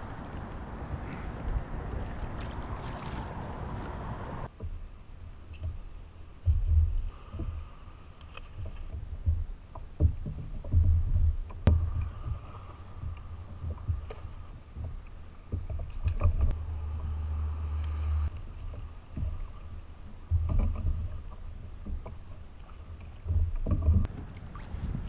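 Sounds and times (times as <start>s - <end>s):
water splashing around kayak: 0.0s - 25.0s
wind: 0.0s - 25.0s
low thumps and knocks: 8.5s - 17.3s, 18.1s - 25.0s.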